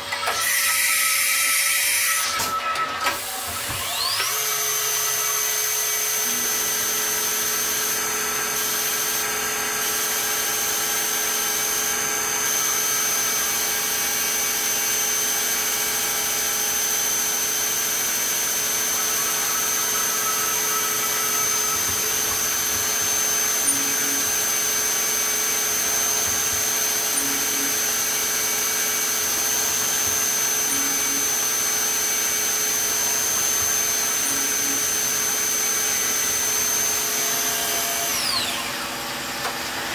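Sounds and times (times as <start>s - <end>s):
milling machine whine: 0.0s - 39.9s.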